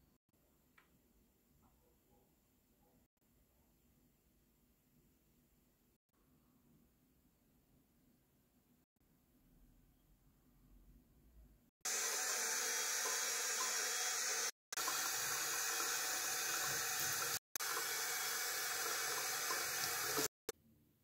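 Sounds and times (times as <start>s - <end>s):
water running from a tap: 11.9s - 20.4s.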